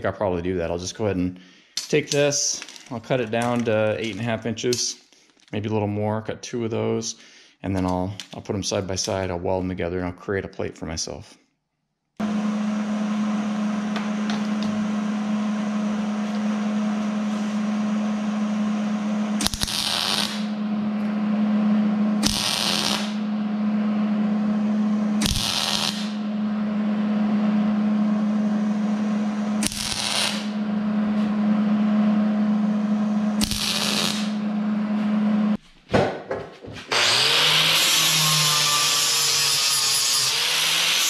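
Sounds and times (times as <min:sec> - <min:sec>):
steady low hum: 0:12.2 - 0:35.6
welding arc crackle: 0:19.4 - 0:21.1, 0:22.2 - 0:23.3, 0:25.2 - 0:26.3, 0:29.6 - 0:30.6, 0:33.4 - 0:34.4.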